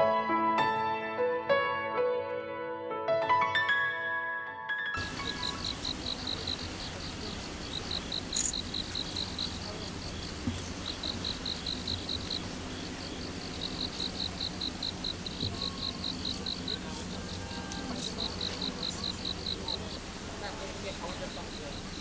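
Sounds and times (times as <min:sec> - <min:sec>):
cricket chirping: 0:05.0 - 0:22.0
low steady background noise: 0:05.0 - 0:22.0.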